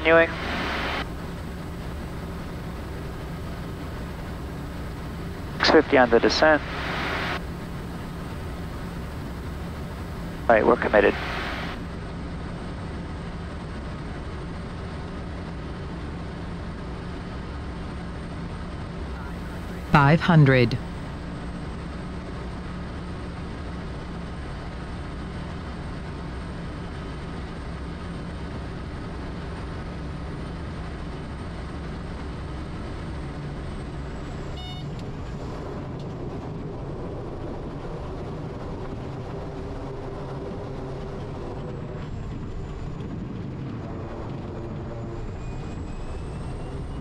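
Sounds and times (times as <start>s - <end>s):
high turbine whine: 0.0s - 13.1s, 18.8s - 22.2s, 31.4s - 47.0s
turboprop engine and propeller: 0.0s - 47.0s
brief beep: 34.6s - 35.0s.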